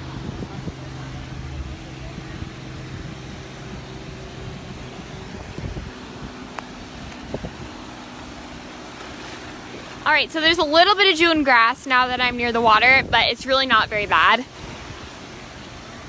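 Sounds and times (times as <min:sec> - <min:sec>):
low engine hum: 0:00.0 - 0:16.0
surf washing onto beach: 0:00.0 - 0:16.0
wind on microphone: 0:00.0 - 0:16.0.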